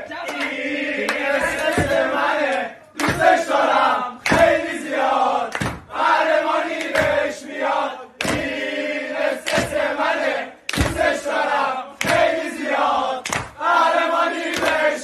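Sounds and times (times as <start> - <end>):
men chanting together: 0.0 - 15.0
sharp clapping: 0.2 - 1.8, 2.4 - 3.5, 4.2 - 4.6, 5.5 - 5.9, 6.7 - 7.3, 8.2 - 8.6, 9.4 - 9.9, 10.6 - 11.4, 12.0 - 12.5, 13.2 - 13.7, 14.4 - 15.0.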